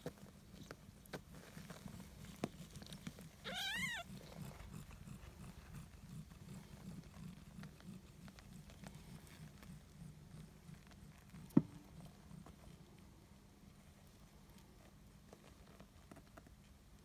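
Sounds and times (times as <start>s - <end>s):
kitten mewing: 3.4s - 4.1s.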